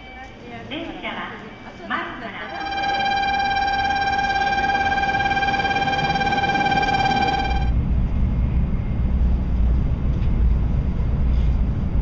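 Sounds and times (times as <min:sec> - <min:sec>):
platform noise: 0:02.4 - 0:07.8
low rumble inside train car: 0:02.4 - 0:12.0
high electronic tone: 0:02.5 - 0:07.8.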